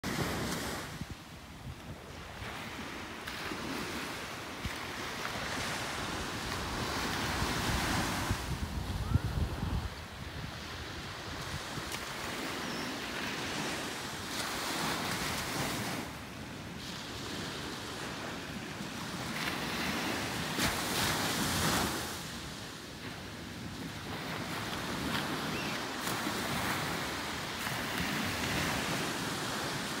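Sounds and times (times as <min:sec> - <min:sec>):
waves washing ashore: 0:00.0 - 0:30.0
wind rumbling on microphone: 0:00.1 - 0:13.8.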